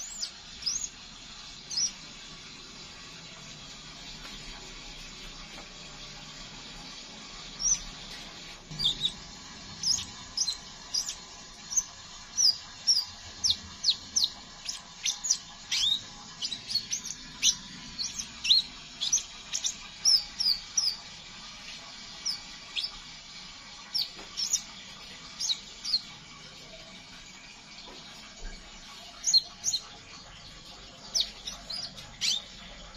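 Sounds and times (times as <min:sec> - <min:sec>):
bird chattering high calls: 0:09.8 - 0:21.0.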